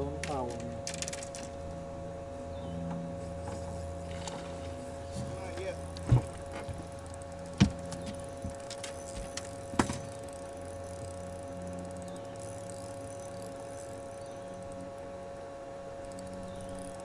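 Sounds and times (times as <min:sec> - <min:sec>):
steady hum: 0:00.0 - 0:17.0
knocks on boat deck: 0:06.0 - 0:06.8, 0:07.6 - 0:08.6, 0:09.2 - 0:10.0.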